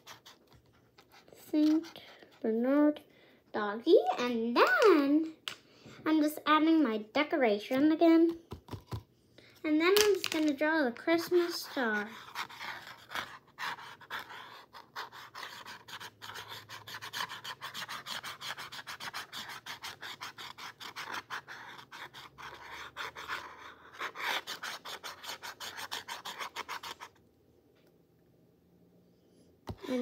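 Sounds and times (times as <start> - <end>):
pen scribbling on board: 0.0 - 2.4, 11.2 - 27.1.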